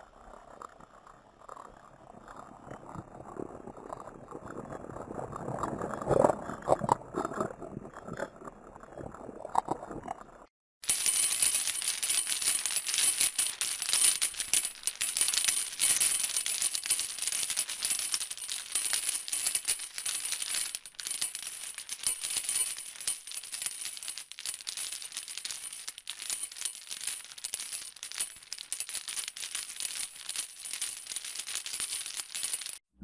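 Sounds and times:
dense crackling and fizzing: 0.0 - 10.5.

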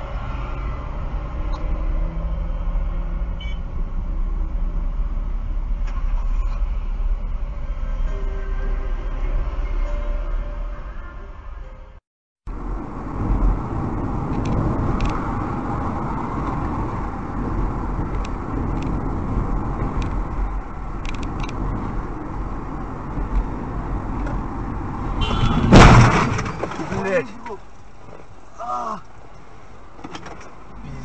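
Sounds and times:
car road and engine noise: 0.0 - 31.0.

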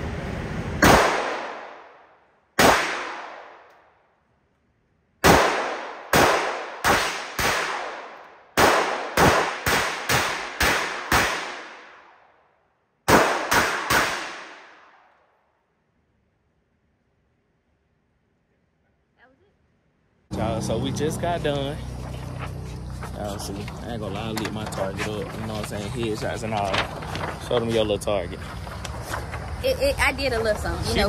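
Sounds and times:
gunshots with long echo: 0.8 - 4.0, 5.2 - 15.4.

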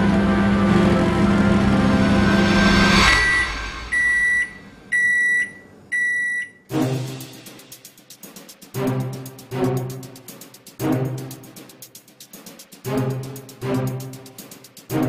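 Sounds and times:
microwave oven humming: 0.0 - 2.2
music: 0.0 - 4.0, 6.7 - 15.0
microwave timer beeps: 3.2 - 6.6.

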